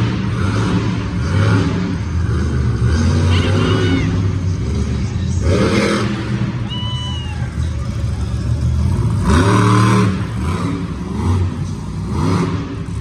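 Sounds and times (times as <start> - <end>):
crowd voices: 0.0 - 13.0
truck engine rumbling: 0.0 - 13.0
people shouting: 3.3 - 4.3, 6.6 - 7.8.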